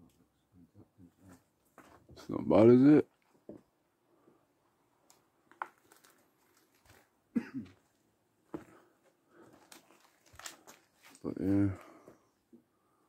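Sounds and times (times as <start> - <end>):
person coughing or grunting: 7.3 - 7.8.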